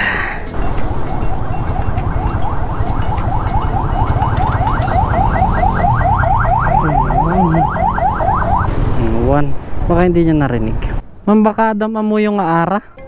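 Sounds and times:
electronic alarm whooping: 0.6 - 8.7.

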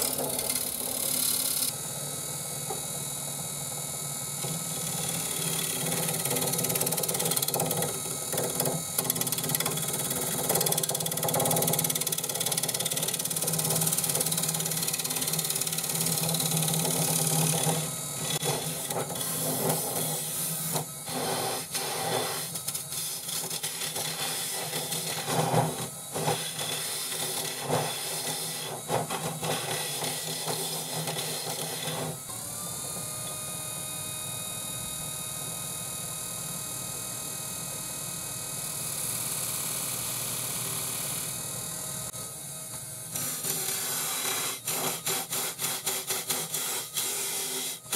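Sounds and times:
tool shaving wood on lathe: 0.0 - 1.8, 4.4 - 32.2, 43.2 - 47.9
lathe humming and whining: 0.0 - 47.9.

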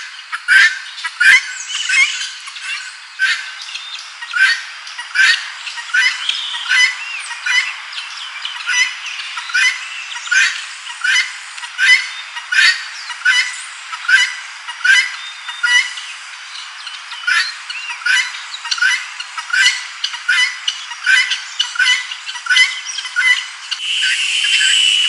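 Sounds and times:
guinea fowl squawking: 0.3 - 7.8, 8.4 - 16.0, 16.8 - 25.0.

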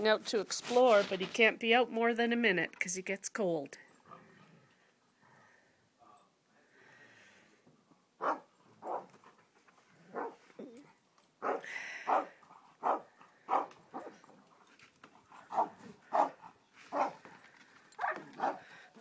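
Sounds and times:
dog barking: 8.2 - 9.1, 10.1 - 10.4, 11.4 - 14.2, 15.5 - 17.2, 18.0 - 18.7.

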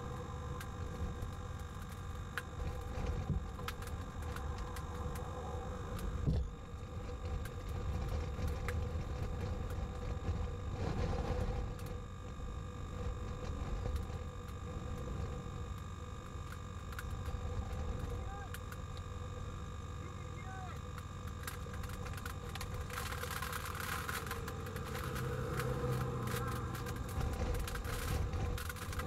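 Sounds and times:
faint steady hum: 0.0 - 29.0
sharp ticks: 20.8 - 29.0
wind rumbling on microphone: 24.0 - 29.0.

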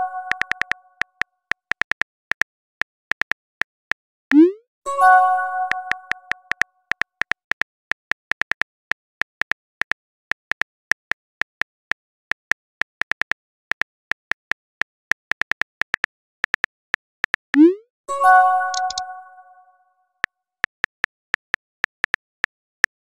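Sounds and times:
phone keyboard clicks: 0.3 - 2.5, 3.1 - 3.4, 5.7 - 17.7, 18.7 - 19.0.

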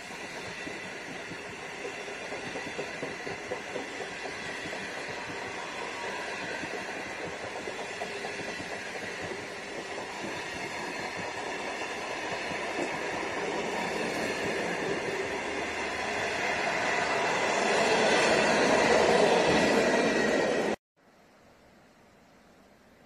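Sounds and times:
train wheels rumbling on rail: 0.0 - 20.8.

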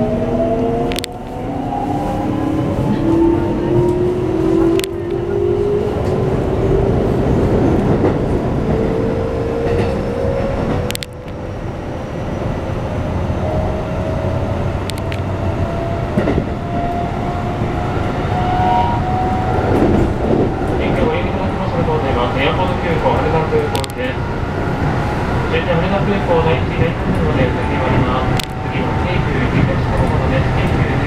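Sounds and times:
wheels rumbling on rails: 0.0 - 31.0
sharp clicks: 10.9 - 11.4.

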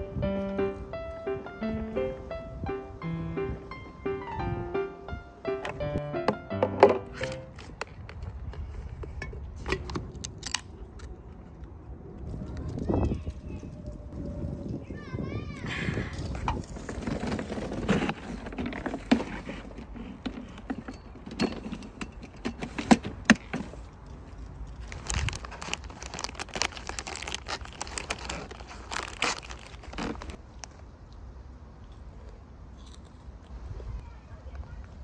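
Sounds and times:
rustling and crinkling: 7.0 - 15.1, 16.0 - 35.0
objects clicking and knocking: 16.4 - 26.0.

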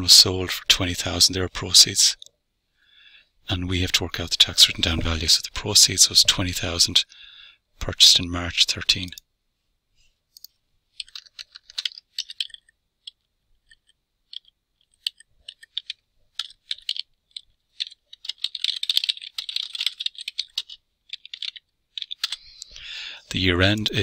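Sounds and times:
typing on computer keyboard: 11.0 - 22.7.

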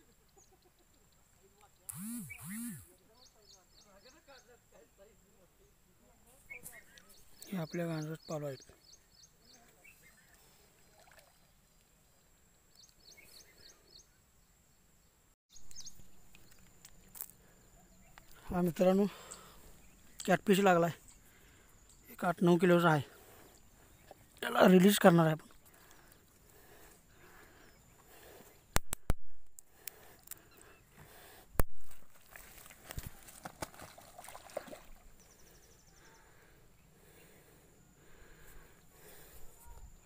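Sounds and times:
small bird chirping: 0.0 - 4.6, 6.4 - 26.3
fish splashing in water: 31.9 - 35.2.

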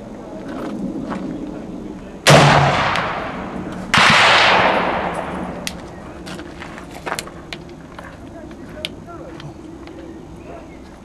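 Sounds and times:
rifle gunshots: 2.3 - 5.9.

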